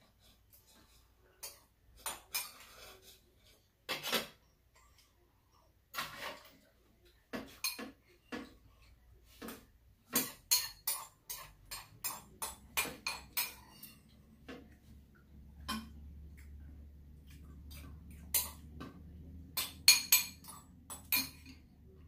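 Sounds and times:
spoons clinking on ceramic bowls: 10.1 - 14.2, 15.6 - 16.0, 18.1 - 18.7, 19.5 - 21.7.

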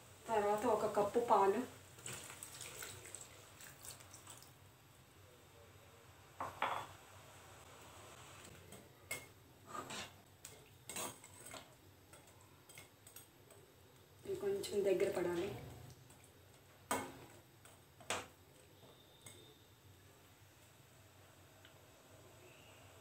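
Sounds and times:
milk pouring: 2.0 - 4.6
metal spoon clinking and scraping pan: 10.9 - 11.6.

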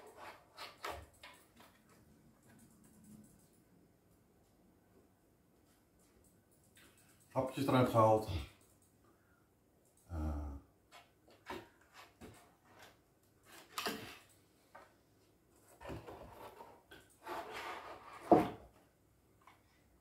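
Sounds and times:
shelf scraping on metal rods: 16.0 - 18.4.

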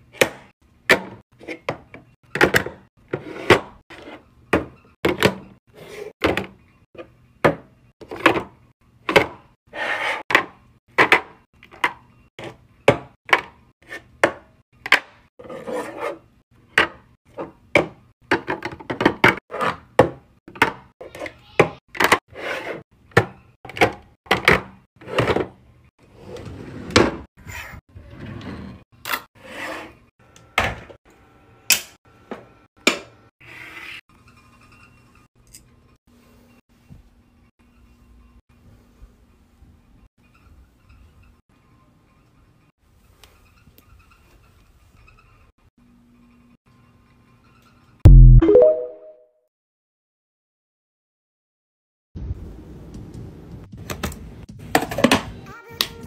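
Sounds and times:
containers sliding and scraping: 25.0 - 30.1.

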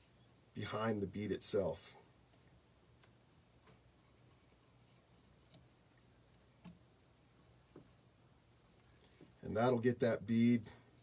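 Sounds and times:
soft clicks: 2.2 - 7.9.

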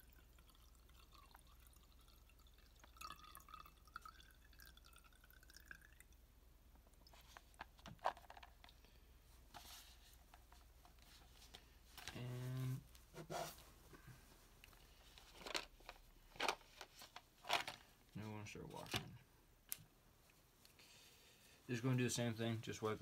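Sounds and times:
liquid trickling into glass jar: 0.0 - 6.2.

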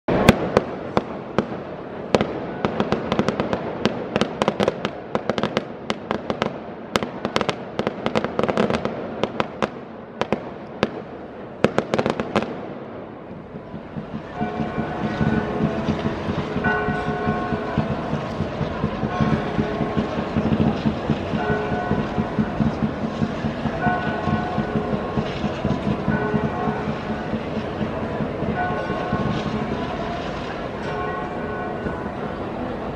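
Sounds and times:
fireworks bangs crackling: 0.1 - 32.9
firework whistling: 13.3 - 32.9.

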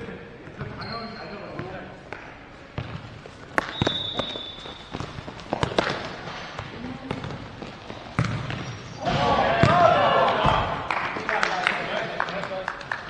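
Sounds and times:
ball kicked and bouncing: 2.8 - 10.7.

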